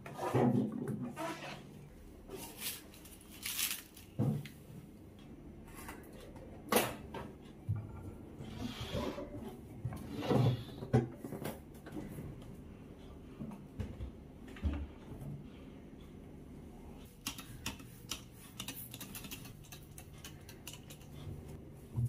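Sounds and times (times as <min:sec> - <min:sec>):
scrape on kitchen counter: 0:08.5 - 0:10.8.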